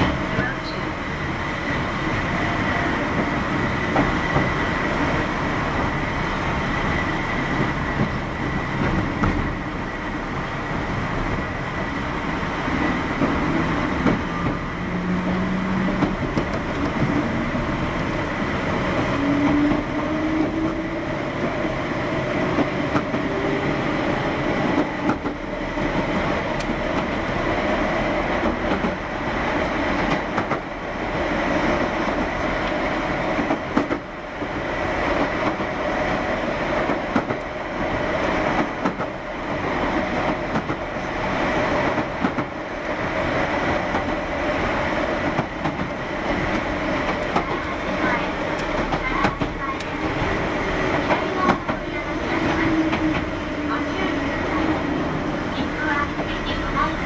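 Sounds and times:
electric train whine: 0:00.0 - 0:57.0
wheel clatter over rail joints: 0:12.8 - 0:17.5, 0:43.7 - 0:55.2.

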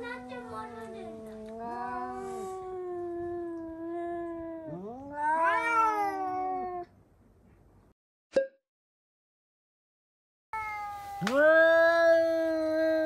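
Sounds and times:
cats yowling: 0:00.0 - 0:06.9, 0:10.6 - 0:13.0.

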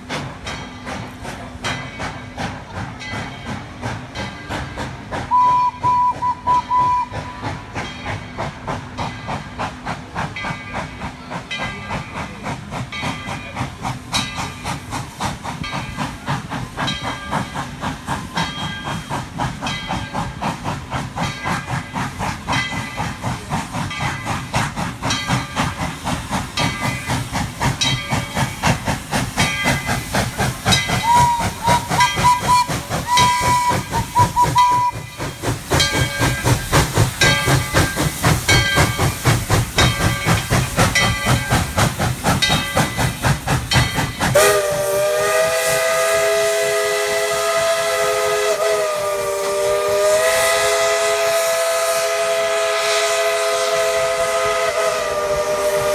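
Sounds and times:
steam hiss: 0:00.0 - 0:55.9
steam locomotive chuffing: 0:00.0 - 0:55.9
steam whistle blast: 0:05.3 - 0:07.4, 0:31.0 - 0:35.0, 0:44.3 - 0:55.9.

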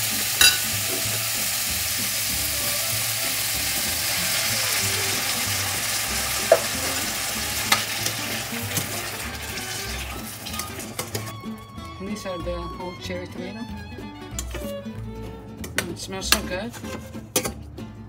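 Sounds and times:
olives sizzling in oil: 0:00.0 - 0:11.4
tomatoes poured into hot oil: 0:00.0 - 0:11.4.

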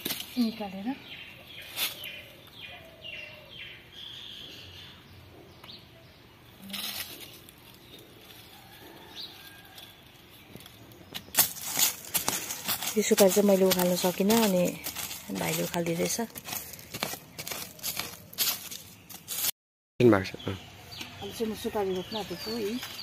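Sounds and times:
digging and scraping in soil: 0:00.0 - 0:00.8, 0:01.5 - 0:02.4, 0:06.6 - 0:19.6, 0:21.0 - 0:23.0
leaves rustling: 0:00.0 - 0:02.4, 0:06.6 - 0:19.5, 0:21.2 - 0:23.0
birds chirping: 0:00.0 - 0:19.4, 0:20.0 - 0:23.0.

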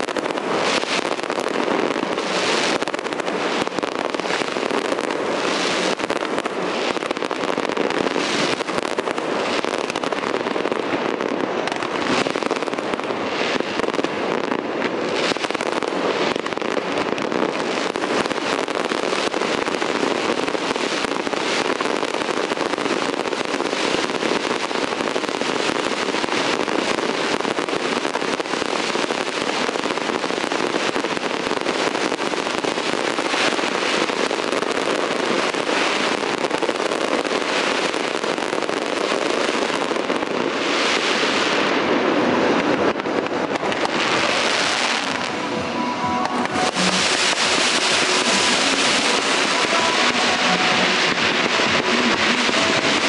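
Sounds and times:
sharp firework bangs: 0:00.0 - 0:53.0.

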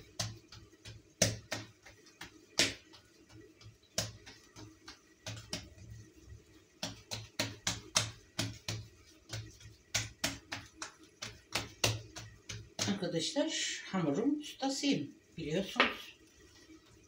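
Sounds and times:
clicks and taps on tiled counter: 0:00.0 - 0:05.8, 0:06.8 - 0:13.0.

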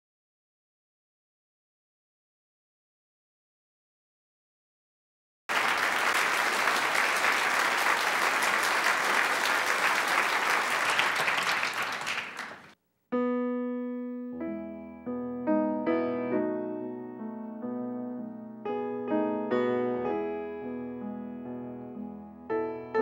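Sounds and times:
audience applauding: 0:05.5 - 0:12.8
grand piano playing slow chords: 0:13.1 - 0:23.0.

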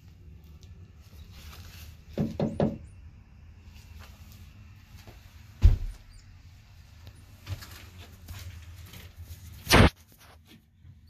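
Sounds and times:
knocks on wooden boards: 0:02.2 - 0:02.8
heavy deep thump: 0:05.6 - 0:06.0.

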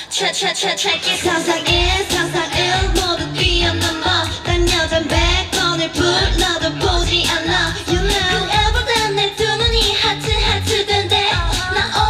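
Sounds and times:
female group vocals singing: 0:00.0 - 0:12.0
kick-drum beat: 0:01.7 - 0:03.8, 0:04.4 - 0:09.0, 0:09.6 - 0:10.7.

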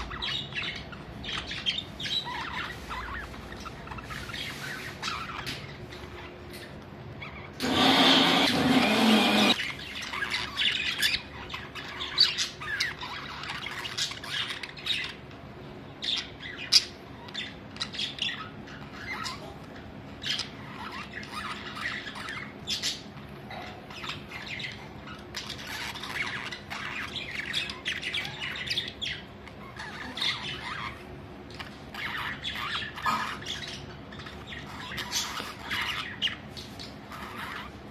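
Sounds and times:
budgerigars chirping and squawking: 0:00.0 - 0:37.9
loud harsh bird burst: 0:07.5 - 0:09.9.

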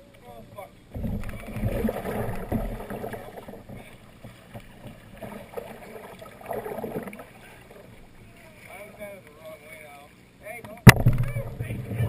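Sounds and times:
water splashing and rushing: 0:01.0 - 0:09.1, 0:10.9 - 0:12.0.

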